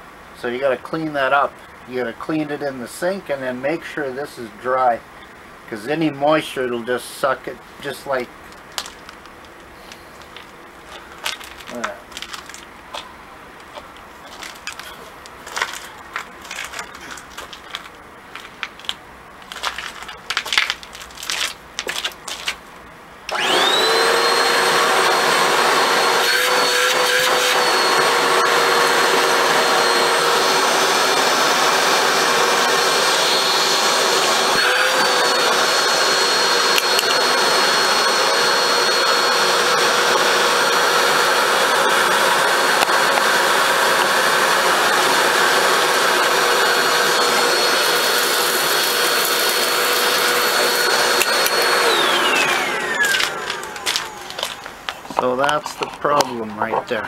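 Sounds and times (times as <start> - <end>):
plastic parts clattering: 8.7 - 12.7, 13.7 - 22.6
vacuum motor whining: 23.3 - 55.3.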